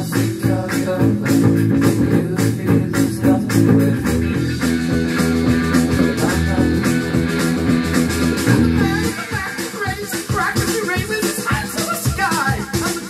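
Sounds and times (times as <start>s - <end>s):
electric bass guitar: 0.0s - 9.4s
rock band with guitar and drums: 0.0s - 13.0s.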